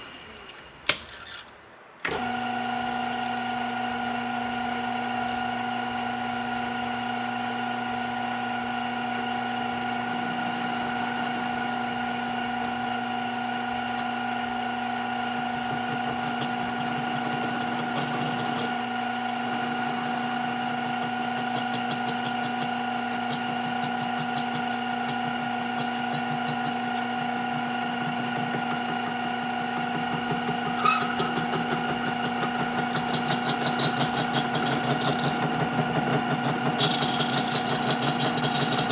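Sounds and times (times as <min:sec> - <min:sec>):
metal lathe running: 0:02.2 - 0:38.9
thin high cutting whine: 0:08.7 - 0:38.9.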